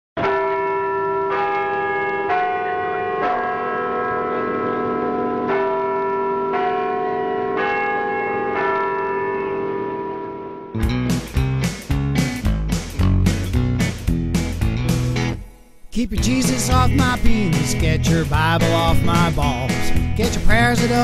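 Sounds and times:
church bells ringing: 0.2 - 10.9, 15.4 - 21.0
strummed guitar: 10.7 - 21.0.

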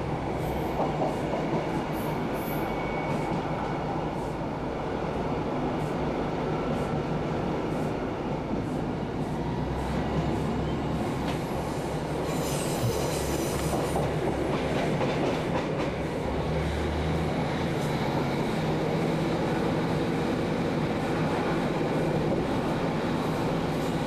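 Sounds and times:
wheels rumbling on rail: 0.0 - 24.0
high-pitched wheel squeal: 2.4 - 3.4, 12.2 - 13.6
rail joint clicks: 5.8 - 16.7.

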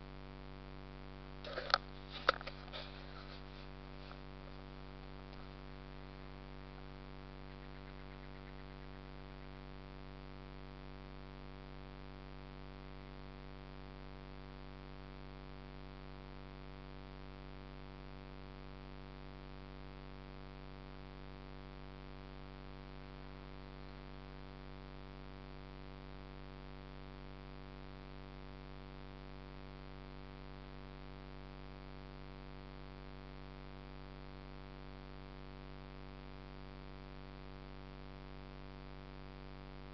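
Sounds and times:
electrical hum: 0.0 - 13.8.

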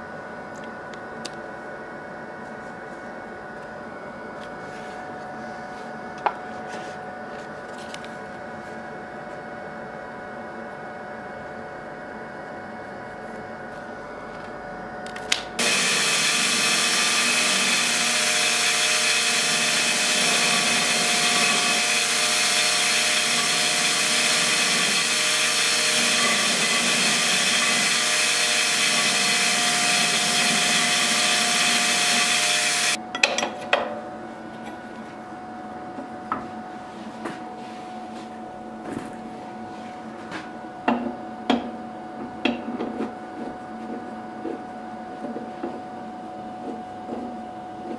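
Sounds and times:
belt grinder grinding metal: 15.6 - 33.0.

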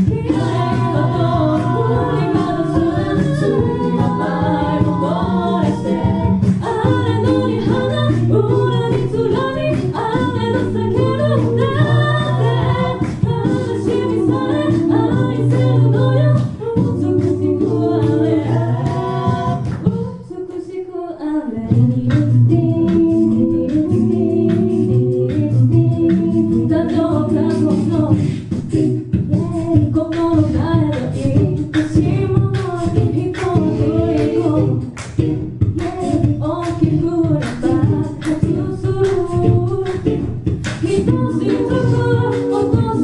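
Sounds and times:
beatboxing: 0.0 - 20.7, 21.6 - 43.0
voices singing close harmony: 0.0 - 43.0.

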